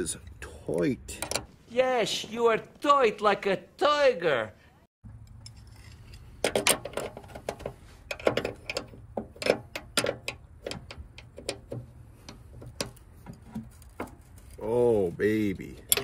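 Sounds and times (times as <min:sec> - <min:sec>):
wrenches clinking on metal: 0:15.6 - 0:16.0.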